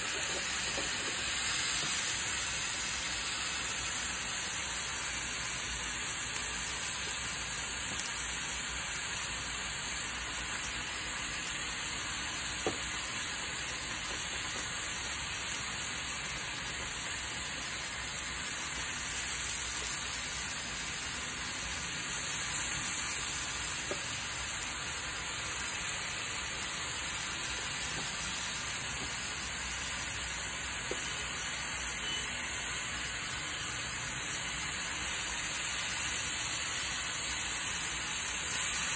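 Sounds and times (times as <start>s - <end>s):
meat sizzling on a grill: 0.0s - 38.9s.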